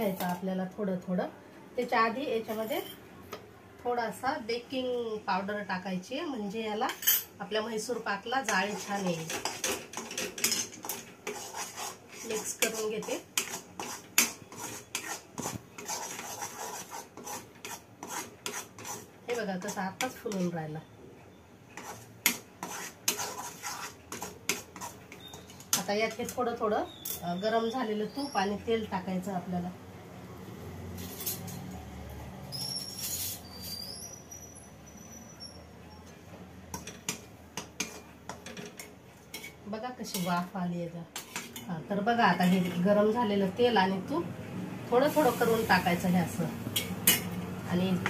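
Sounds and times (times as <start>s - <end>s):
spatula scraping metal pan: 8.4s - 20.5s, 21.8s - 26.4s, 32.5s - 35.6s, 36.7s - 40.5s, 41.1s - 41.7s, 42.3s - 42.9s, 46.8s - 47.4s.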